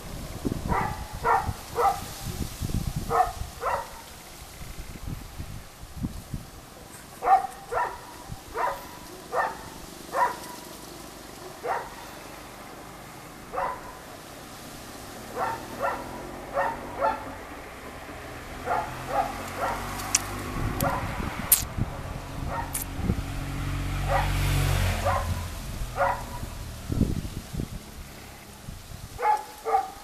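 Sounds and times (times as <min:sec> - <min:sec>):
dog barking: 0:00.6 - 0:02.1, 0:03.1 - 0:04.1, 0:07.2 - 0:10.6, 0:11.4 - 0:12.1, 0:13.5 - 0:14.1, 0:15.3 - 0:17.4, 0:18.6 - 0:20.0, 0:20.8 - 0:21.2, 0:22.5 - 0:22.8, 0:24.0 - 0:24.4, 0:25.0 - 0:25.4, 0:26.0 - 0:26.5, 0:29.2 - 0:30.0.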